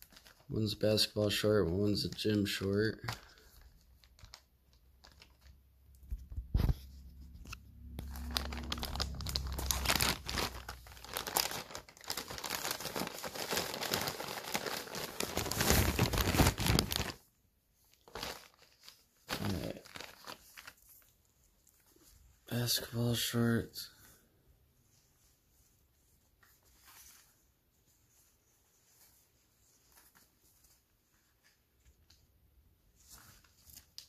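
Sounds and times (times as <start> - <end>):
plastic bag crinkling: 0.0 - 6.2, 7.8 - 17.3, 17.9 - 21.8.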